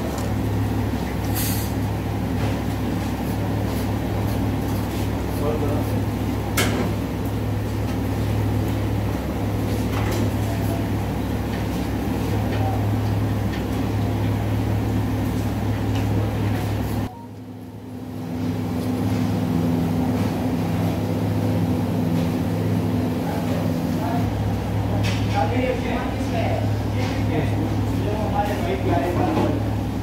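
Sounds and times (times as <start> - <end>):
low machine hum: 0.0 - 30.0.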